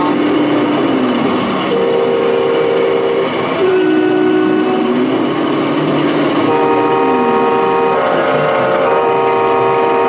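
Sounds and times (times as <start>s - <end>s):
hall noise: 0.0s - 10.0s
air horn blasts: 1.7s - 5.1s, 6.5s - 10.0s.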